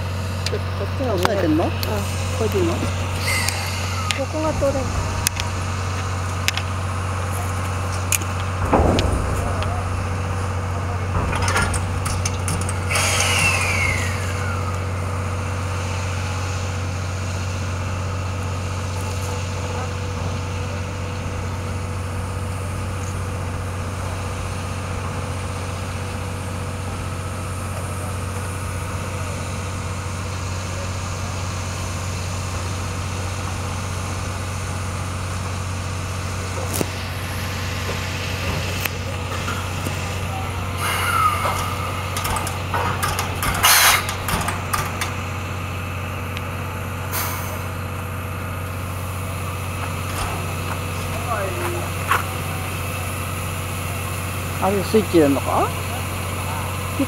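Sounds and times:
loud steam hiss: 0.0 - 57.0
low mechanical hum: 0.0 - 57.0
metal clanks: 3.3 - 14.0, 41.0 - 45.2.

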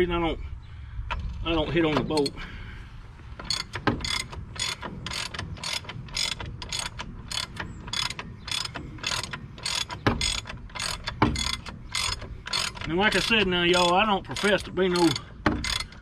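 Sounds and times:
ratchet wrench clicking: 3.4 - 16.0.

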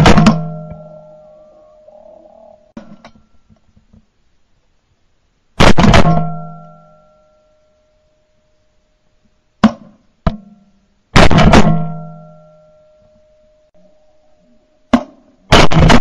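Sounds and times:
shotgun shots: 0.0 - 0.8, 5.6 - 6.3, 11.2 - 12.0, 15.0 - 16.0.

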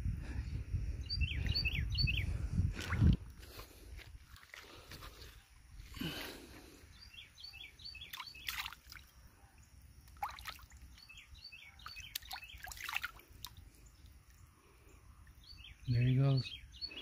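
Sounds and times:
bird chirping: 1.0 - 2.5, 6.8 - 8.9, 10.7 - 17.0
water splashing and dripping: 2.7 - 3.2, 4.2 - 5.4, 8.0 - 9.2, 10.0 - 11.0, 11.9 - 14.4.

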